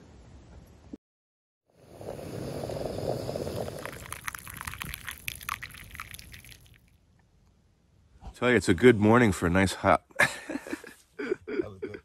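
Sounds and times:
liquid being poured: 2.0 - 7.0.

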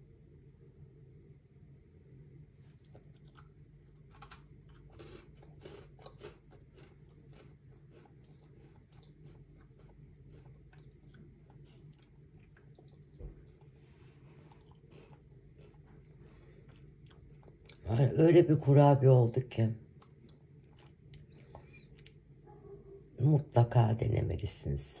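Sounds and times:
crunchy cookie chewing: 2.6 - 18.3, 19.8 - 22.4.

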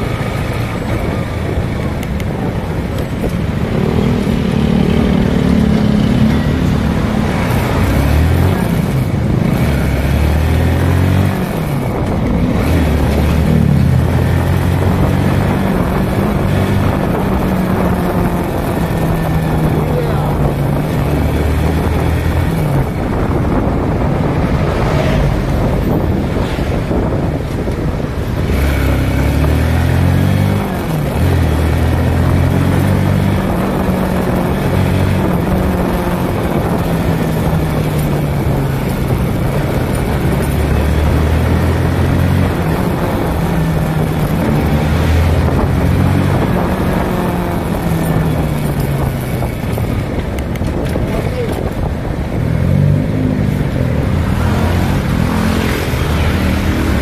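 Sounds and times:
motorcycle engine revving: 0.0 - 57.0
wind rushing over microphone: 0.0 - 57.0.

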